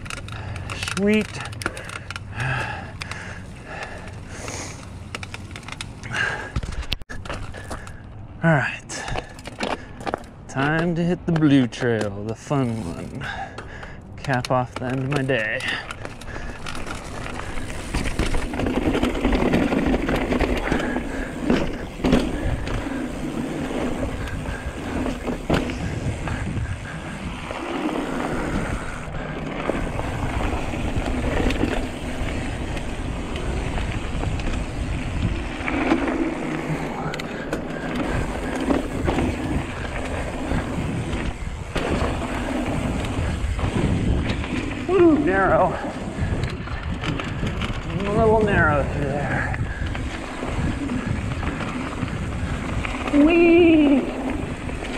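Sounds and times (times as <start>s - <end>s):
tyres rolling over dirt: 8.6s - 54.9s
bike knocks and rattles: 9.0s - 54.9s
wind on microphone: 17.3s - 36.9s, 38.0s - 54.9s.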